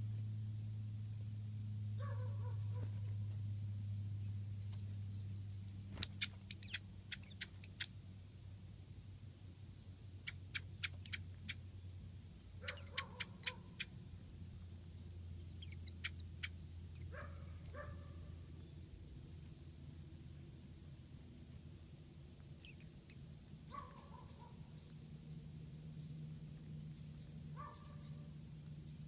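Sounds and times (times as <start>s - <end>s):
low steady hum: 0.0s - 29.0s
thin high bird calls: 2.0s - 8.0s, 9.8s - 14.0s, 14.9s - 19.7s, 22.4s - 25.4s, 26.0s - 29.0s
bird clicking call notes: 6.0s - 8.0s, 10.2s - 11.6s, 12.6s - 14.0s.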